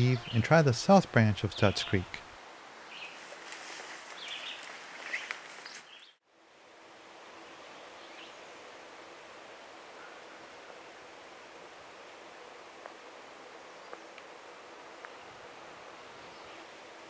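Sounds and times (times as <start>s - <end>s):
rustling of brush: 2.2s - 6.2s.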